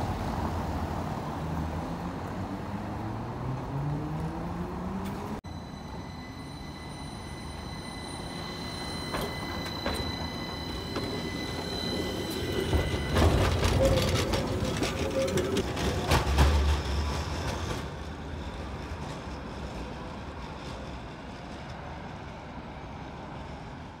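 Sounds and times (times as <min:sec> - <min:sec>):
tram electrical whine: 0:03.0 - 0:24.0
tram wheels knocking over track: 0:08.8 - 0:18.0.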